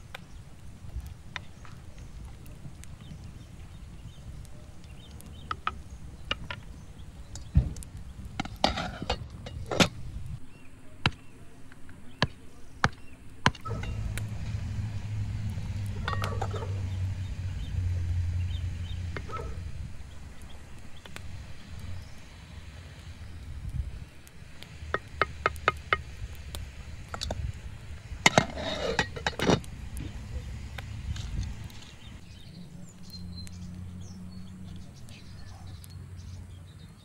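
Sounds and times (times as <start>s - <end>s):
low rumble: 13.6s - 36.6s.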